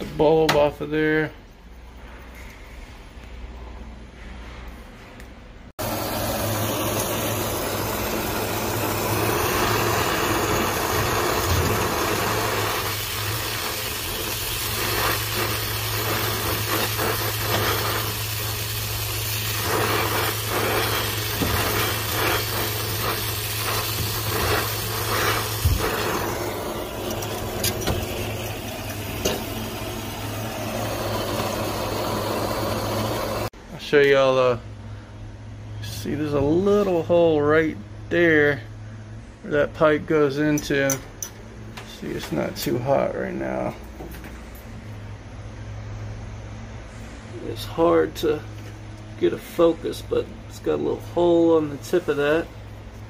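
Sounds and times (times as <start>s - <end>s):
torch flame hissing and rumbling: 5.7s - 33.6s, 39.4s - 53.0s.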